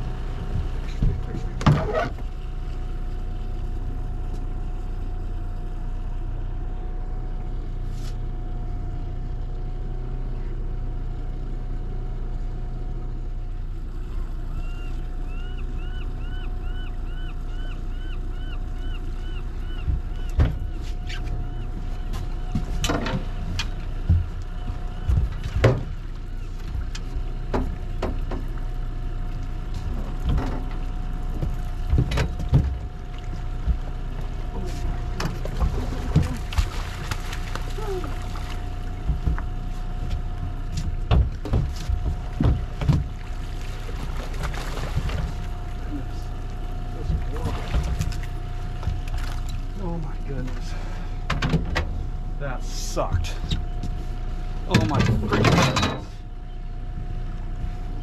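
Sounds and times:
outboard motor running: 0.0 - 58.0
knocks and thumps on boat: 0.3 - 2.3, 19.6 - 28.8, 29.8 - 50.6, 51.2 - 52.1, 53.0 - 56.3.

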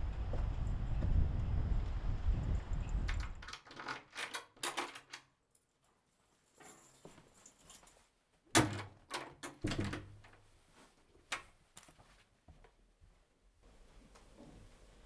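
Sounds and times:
footsteps on a rug: 10.4 - 15.0.

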